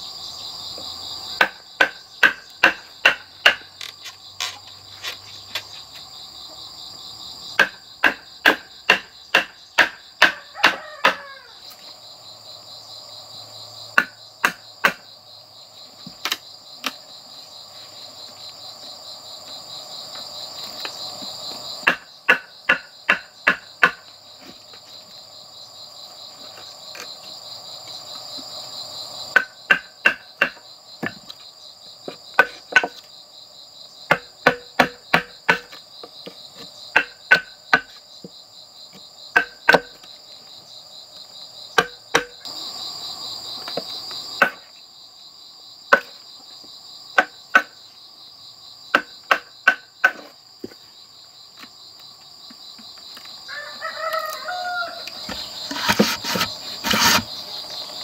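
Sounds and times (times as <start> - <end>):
insects buzzing: 0.0 - 58.0
chisel hammered into bamboo: 1.4 - 3.8, 7.6 - 11.3, 14.0 - 15.1, 21.8 - 24.1, 29.3 - 31.3, 32.1 - 33.0, 34.1 - 35.8, 36.9 - 38.0, 39.3 - 40.0, 41.8 - 42.5, 44.4 - 44.6, 47.2 - 47.8, 48.9 - 50.3, 55.3 - 57.3
rooster crowing: 10.3 - 11.7, 53.4 - 55.6.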